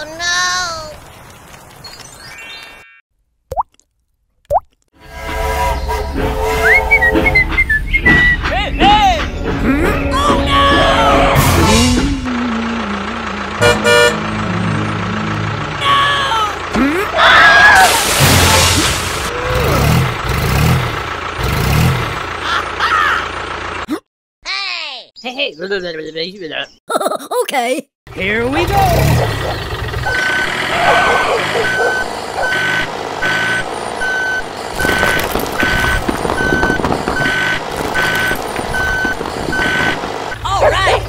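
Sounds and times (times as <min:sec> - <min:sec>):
truck engine labouring: 0:05.0 - 0:24.0, 0:28.1 - 0:41.0
bricks tumbling from a truck bed: 0:34.8 - 0:40.2.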